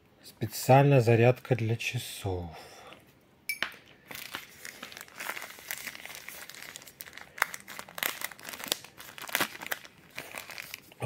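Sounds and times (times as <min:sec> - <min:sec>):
plastic bag crinkling: 0:04.0 - 0:11.0.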